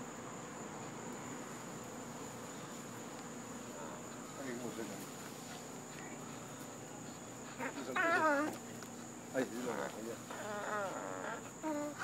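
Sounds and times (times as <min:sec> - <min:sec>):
dog whining: 0:07.5 - 0:08.6, 0:09.6 - 0:12.0.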